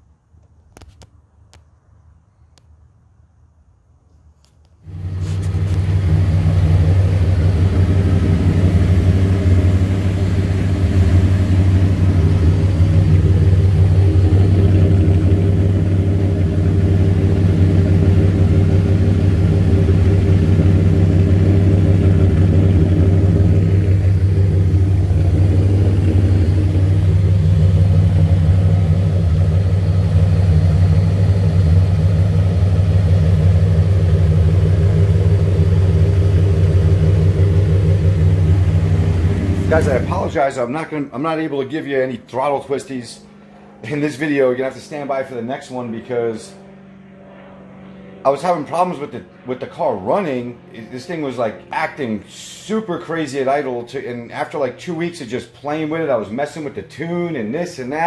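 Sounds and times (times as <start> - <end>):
car engine idling: 4.9 - 46.0.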